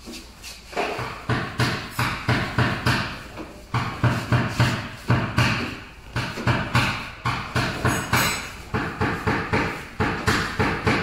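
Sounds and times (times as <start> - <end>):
dent repair tool knocking metal: 3.8 - 11.0.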